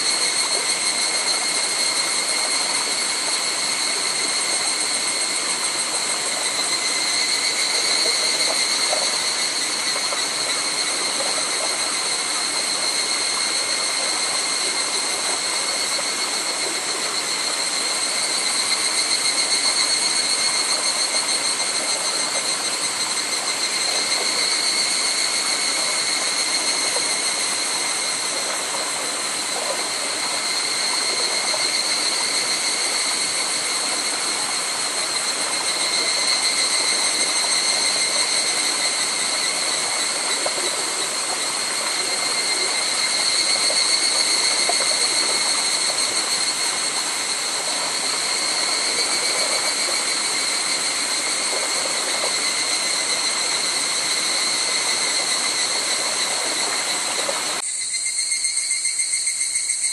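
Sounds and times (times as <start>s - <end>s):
cicadas calling: 0.0s - 59.9s
stream and waterfall rushing: 17.2s - 57.6s.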